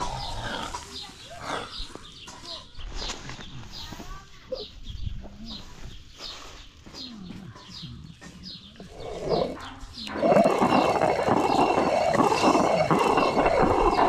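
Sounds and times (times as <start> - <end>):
small birds chirping: 0.0 - 14.0
millstone grinding grain: 8.8 - 14.0.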